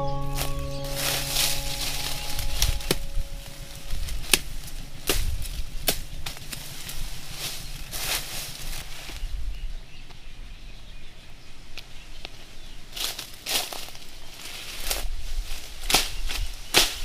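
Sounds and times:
chiming music: 0.0s - 7.6s.

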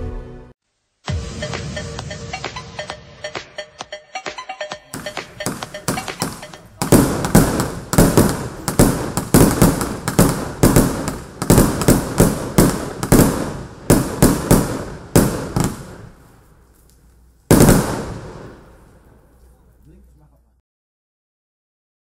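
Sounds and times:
fireworks bangs: 4.9s - 16.8s, 17.5s - 19.6s.

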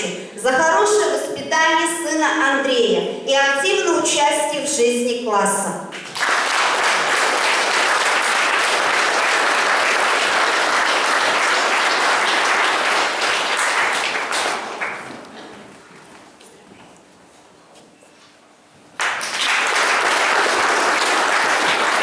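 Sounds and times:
audience applauding: 6.0s - 15.7s, 19.0s - 22.0s.

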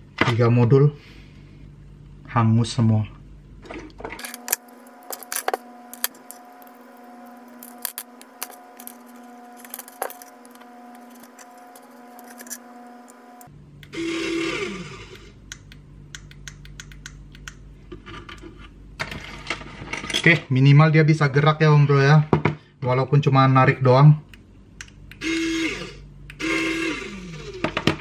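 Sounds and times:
plastic plugs clicking and rattling: 4.2s - 6.7s, 7.6s - 12.6s
small electric motor running: 4.2s - 15.4s, 25.2s - 27.8s.

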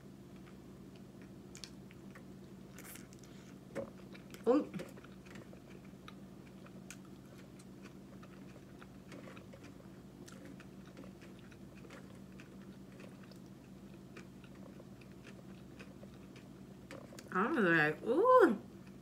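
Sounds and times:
steady low hum: 0.0s - 19.0s
chewing with mouth closed: 0.3s - 17.3s.

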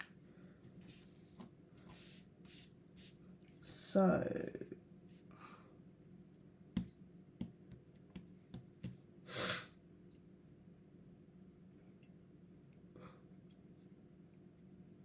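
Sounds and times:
pen tapping on paper: 6.8s - 9.0s.

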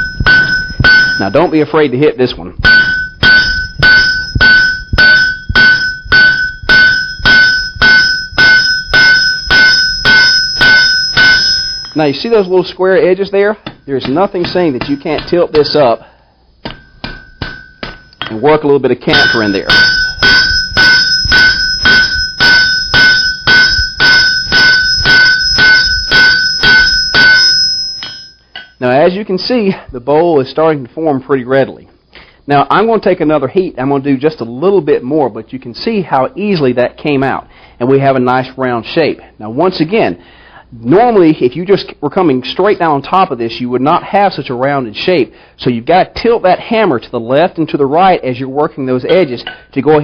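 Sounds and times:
hammer striking iron on anvil: 0.0s - 1.6s, 2.6s - 12.6s, 13.6s - 15.8s, 16.6s - 18.5s, 19.1s - 28.8s
anvil ringing: 0.0s - 1.8s, 2.6s - 12.8s, 13.6s - 16.0s, 16.6s - 28.9s.

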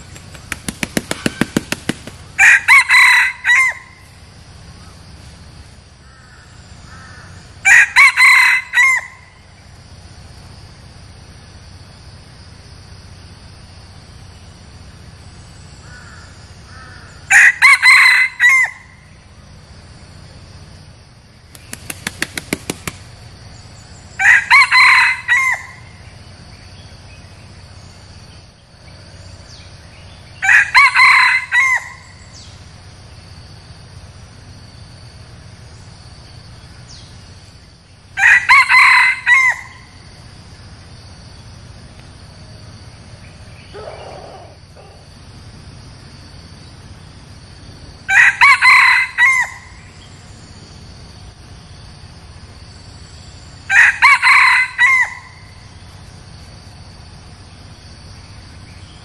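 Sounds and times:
high insect drone: 0.0s - 59.0s
rooster crowing: 2.4s - 4.1s, 6.9s - 9.4s, 16.8s - 19.0s, 24.2s - 25.9s, 30.4s - 32.2s, 38.2s - 40.0s, 48.1s - 49.9s, 53.6s - 55.6s.

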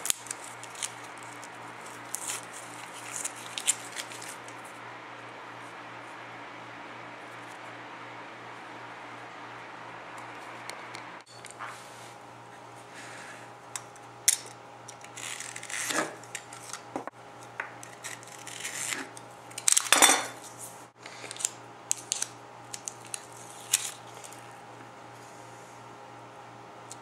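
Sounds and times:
scraping and rustling: 0.0s - 4.8s
steady low hum: 0.0s - 27.0s.

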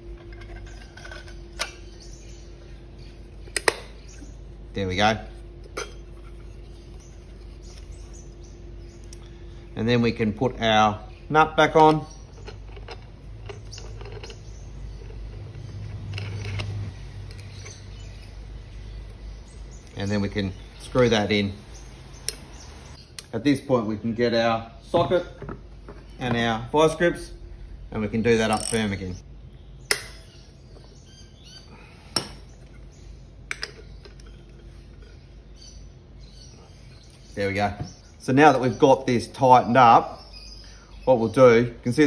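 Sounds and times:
low steady hum: 0.0s - 42.0s
nut clicking and scraping on bolt: 15.0s - 17.7s, 28.4s - 29.0s.

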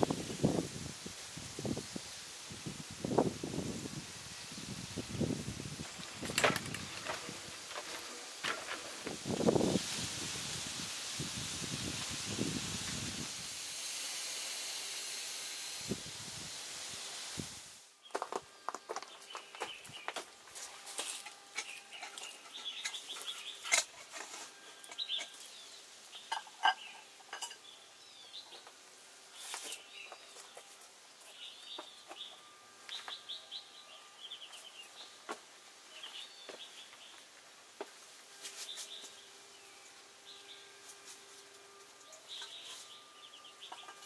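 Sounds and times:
small birds chirping: 18.0s - 20.2s, 21.6s - 28.7s, 29.3s - 35.2s, 35.9s - 37.3s, 42.0s - 44.0s
metal cookware clinking on rock: 26.3s - 27.7s.

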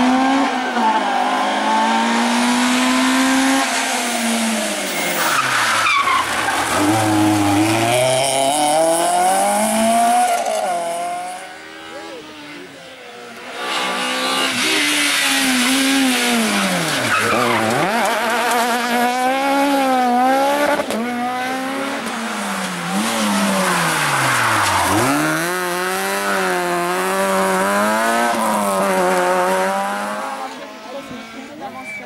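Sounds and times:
rally car engines revving: 0.0s - 32.0s
tyres squealing: 4.9s - 7.8s, 16.3s - 18.6s, 22.4s - 27.5s.

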